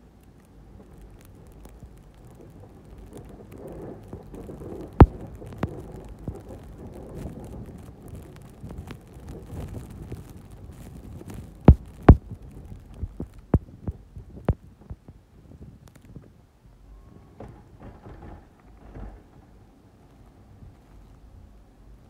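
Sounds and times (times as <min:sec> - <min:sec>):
snow plow knocking: 0:17.4 - 0:19.8.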